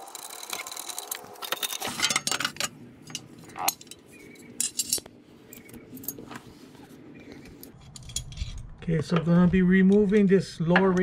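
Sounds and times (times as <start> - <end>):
metal tools clinking: 0.3 - 6.4.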